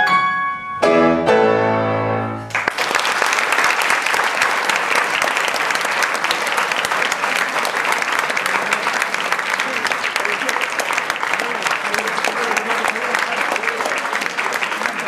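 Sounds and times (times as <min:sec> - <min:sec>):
grand piano chord ringing: 0:00.0 - 0:02.5
audience applause: 0:02.5 - 0:15.0.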